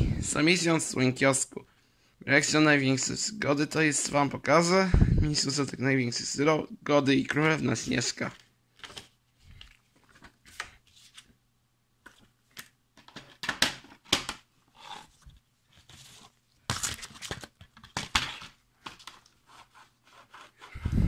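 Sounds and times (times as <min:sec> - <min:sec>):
plastic cases rustling and scraping: 0:13.0 - 0:19.5.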